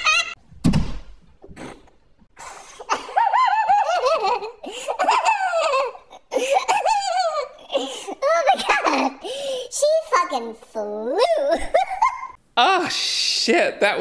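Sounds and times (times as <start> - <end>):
low thump: 0.5 - 1.2.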